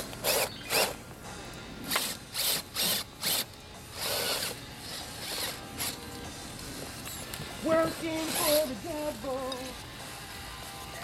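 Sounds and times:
toy car electric motor whirring: 0.0 - 1.0, 1.9 - 6.2, 7.0 - 8.8.

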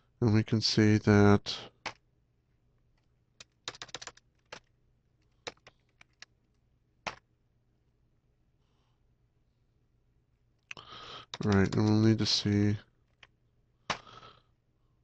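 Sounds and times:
computer keyboard taps: 3.4 - 4.7, 5.4 - 6.3, 11.3 - 11.9.

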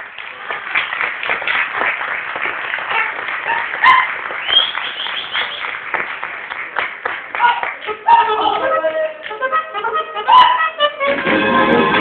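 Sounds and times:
audience applause: 0.0 - 8.6.

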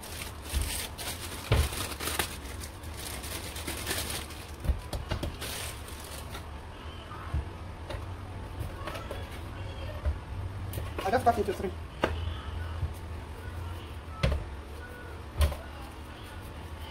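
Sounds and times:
hands patting dough on metal tray: 4.6 - 5.4.

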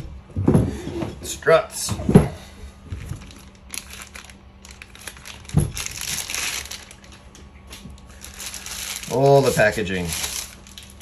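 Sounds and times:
plastic bag crinkling: 2.9 - 11.0.

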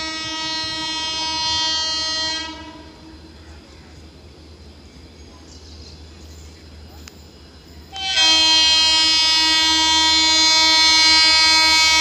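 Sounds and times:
locomotive horn blast: 0.0 - 3.1, 7.9 - 12.0.

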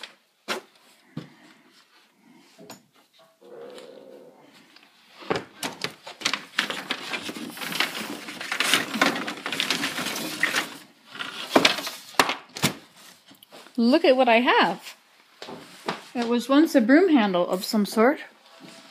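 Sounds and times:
wooden boards clattering: 5.2 - 12.8.

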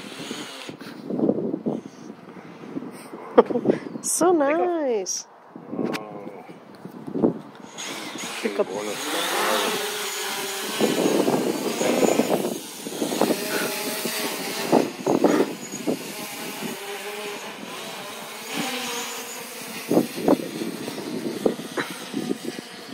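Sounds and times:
drone propellers buzzing: 0.0 - 1.3, 7.5 - 22.9.

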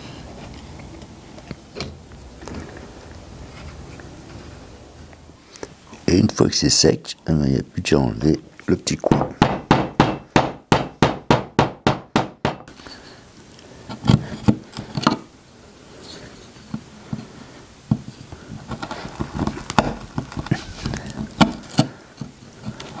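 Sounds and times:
chisel paring wood: 9.0 - 12.7
mallet striking chisel: 9.0 - 12.7.

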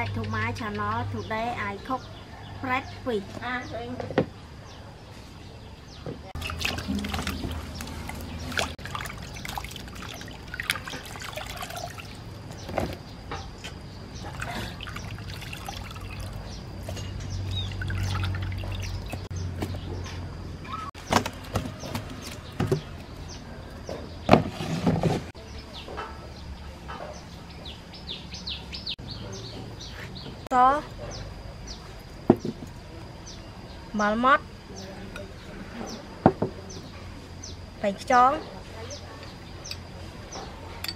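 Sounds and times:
water sloshing in a steel bowl: 6.4 - 13.0, 14.2 - 19.3.

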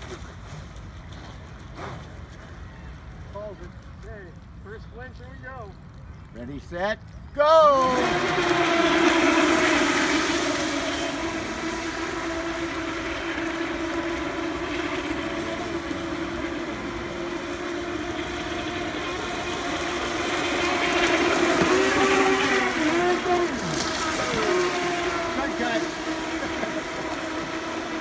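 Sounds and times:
electric motor whine: 7.8 - 28.0.

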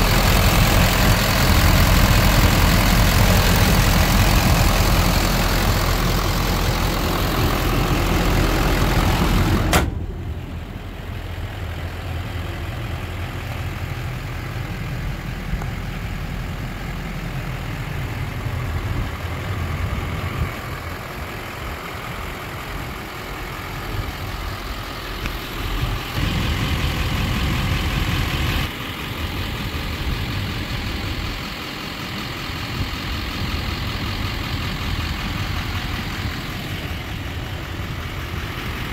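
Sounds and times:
diesel engine idling: 0.0 - 38.9
car hood slamming shut: 9.6 - 10.1.

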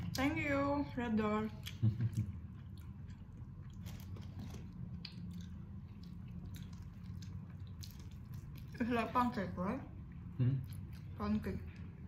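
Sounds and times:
steady low hum: 0.0 - 12.0
person chewing crunchy food: 1.5 - 8.9.

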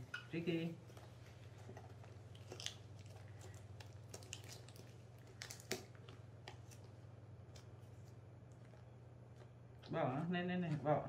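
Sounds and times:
steady low hum: 0.0 - 11.0
small clicks and crunches: 0.9 - 9.5.

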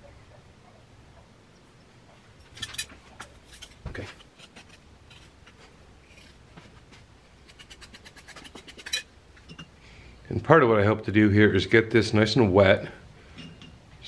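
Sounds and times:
hand tool scraping clay: 2.5 - 6.8, 7.4 - 9.6.

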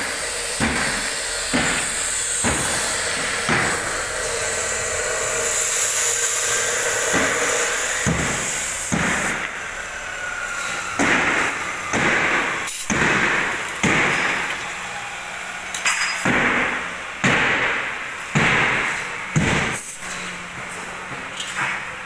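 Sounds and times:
sharp strikes on steel: 0.2 - 9.6, 10.6 - 14.5, 15.8 - 20.0.

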